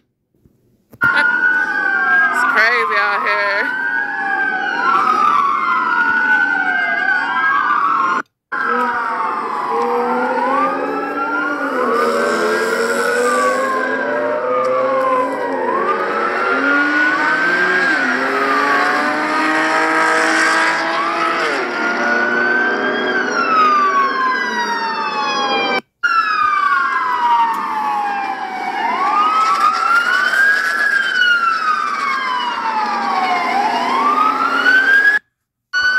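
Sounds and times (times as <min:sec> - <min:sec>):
police sirens wailing: 0:01.0 - 0:35.9.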